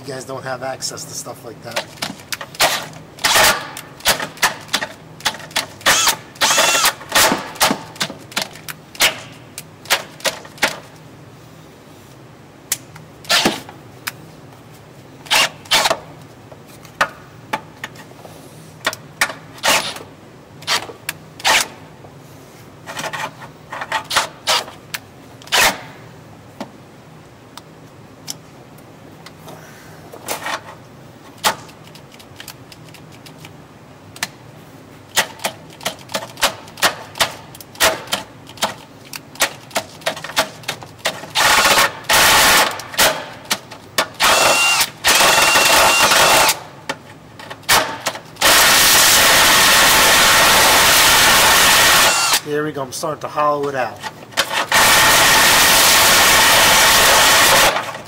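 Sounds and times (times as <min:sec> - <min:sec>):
drill bit chattering in metal: 0:05.8 - 0:07.3, 0:44.2 - 0:46.6, 0:48.4 - 0:52.4.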